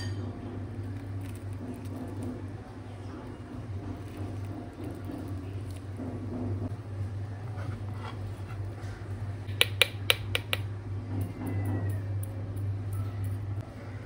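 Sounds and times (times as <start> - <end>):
metal spoon clinking against bowl: 0.0 - 0.3
salt tapped from plastic spoon: 9.5 - 10.7.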